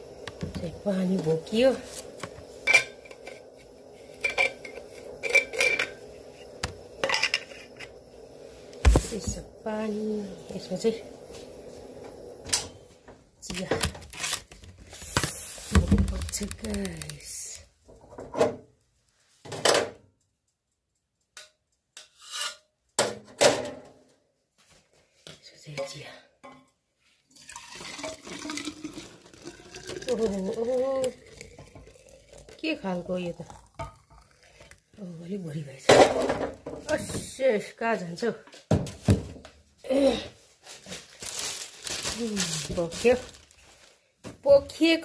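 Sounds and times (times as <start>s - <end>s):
metal flasks rasping and scraping: 2.6s - 8.0s.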